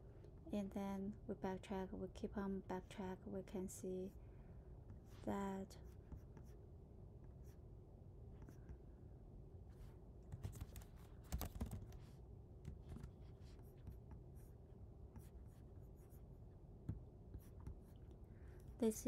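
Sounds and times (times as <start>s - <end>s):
faint low hum: 0.0s - 19.0s
computer keyboard typing: 10.3s - 12.0s.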